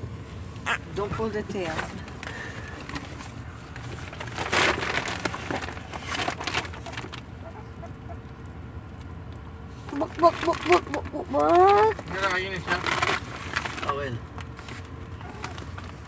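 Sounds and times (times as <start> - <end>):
rustling and scuffling: 1.5 - 7.3, 12.8 - 16.0.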